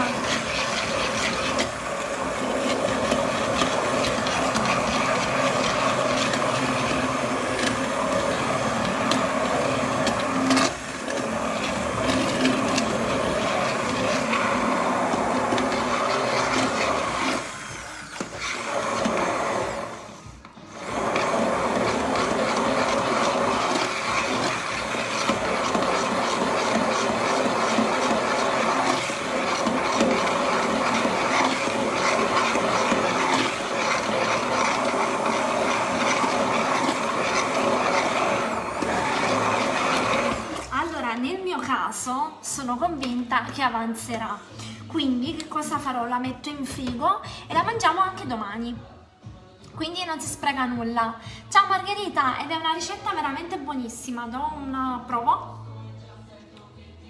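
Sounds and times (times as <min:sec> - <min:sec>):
immersion blender running: 0:00.0 - 0:41.1.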